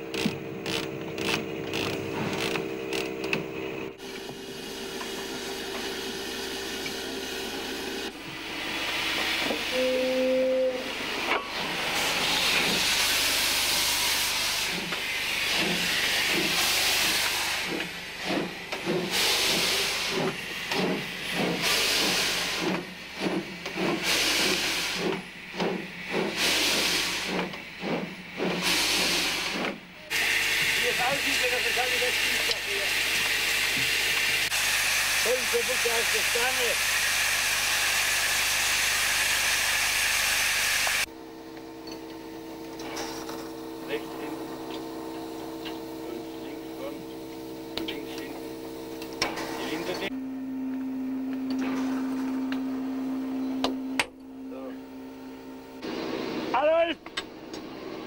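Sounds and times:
steam locomotive exhaust chuffs: 0.0s - 41.1s
steam hiss: 8.4s - 41.1s
locomotive whistle toot: 9.7s - 10.9s.

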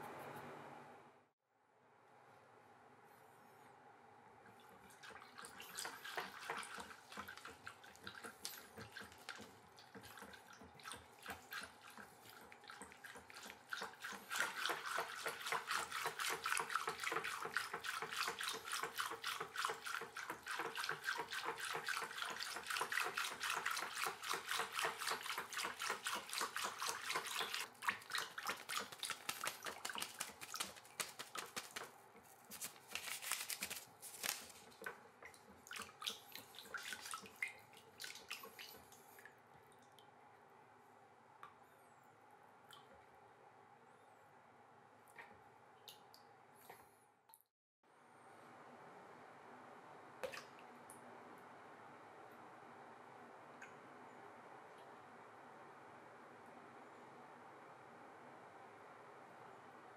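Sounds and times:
whisk splashing water in bucket: 4.5s - 39.8s, 50.2s - 50.6s.

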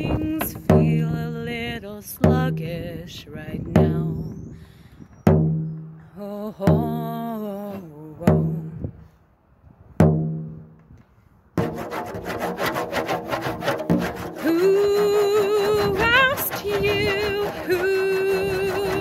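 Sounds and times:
woman singing wordless notes: 0.0s - 4.4s, 6.1s - 8.9s, 14.4s - 19.0s
frame drum stroke: 11.6s - 19.0s
rasping rubbing sound: 11.6s - 19.0s.

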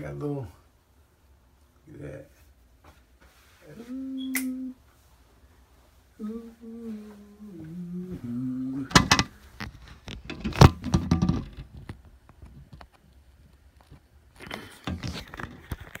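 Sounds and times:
man humming: 3.6s - 4.8s, 6.2s - 9.2s.

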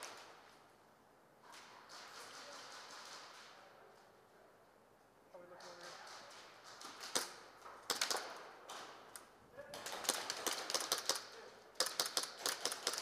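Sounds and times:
airsoft guns firing: 5.6s - 9.0s, 9.7s - 13.0s.

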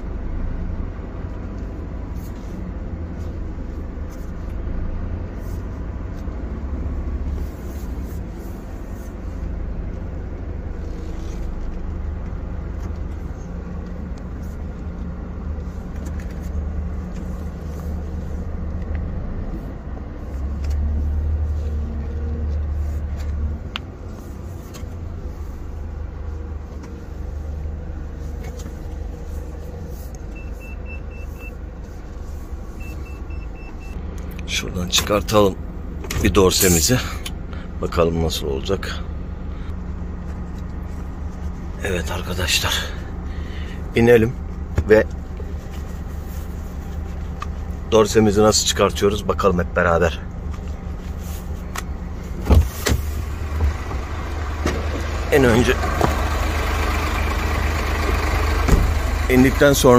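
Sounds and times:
truck diesel engine running: 48.7s - 59.9s.

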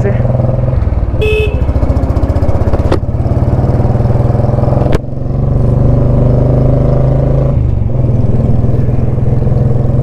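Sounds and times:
motorcycle engine thumping: 0.8s - 5.2s.

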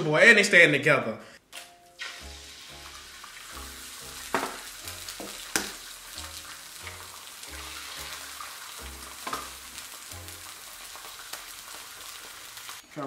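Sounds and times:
eggs sizzling on griddle: 2.0s - 12.8s.

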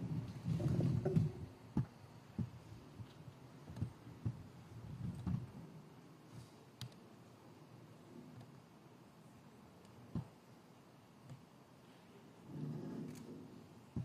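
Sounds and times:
soft low thumps: 0.0s - 5.6s.

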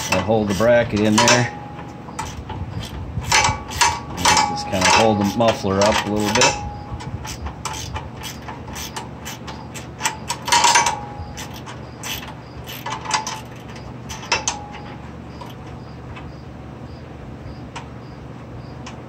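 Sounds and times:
wrench clicking on metal: 0.0s - 1.5s, 2.2s - 6.6s, 7.2s - 14.6s
metal clank: 0.0s - 15.8s.

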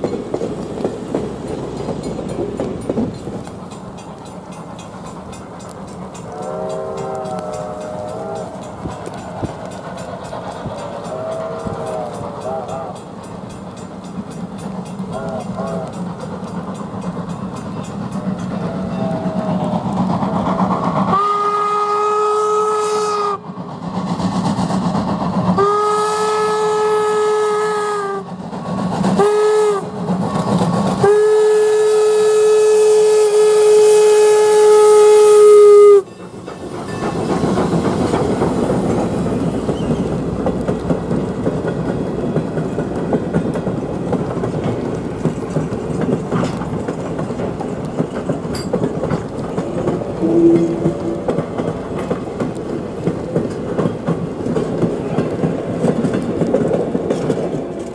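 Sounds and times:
train wheels clacking over rail joints: 0.0s - 57.9s
steam locomotive whistle: 6.2s - 9.9s, 10.7s - 13.1s, 15.1s - 16.0s, 18.5s - 20.0s, 21.0s - 23.6s, 25.6s - 28.4s, 29.2s - 36.2s, 50.2s - 51.4s.

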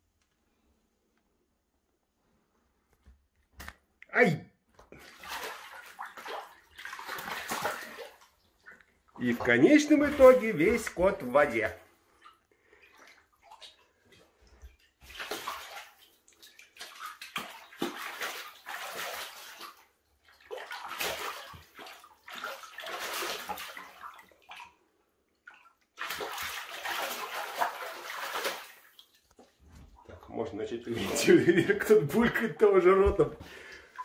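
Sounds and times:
animal splashing in shallow water: 4.9s - 24.8s, 25.4s - 31.6s.

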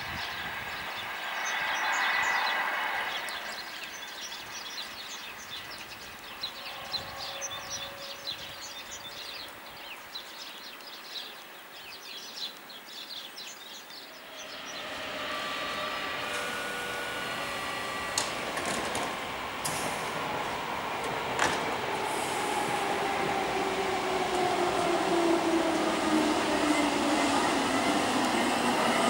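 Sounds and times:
electric train pulling away: 0.0s - 9.4s, 14.0s - 29.0s
small birds chirping: 0.0s - 22.1s.

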